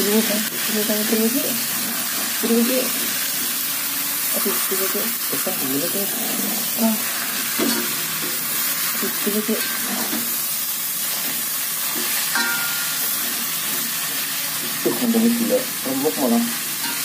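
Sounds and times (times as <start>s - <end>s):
vegetables sizzling in a wok: 0.0s - 17.0s
metal spatula stirring: 7.4s - 10.4s, 11.0s - 14.8s
spatula clinking against pan: 12.3s - 13.0s.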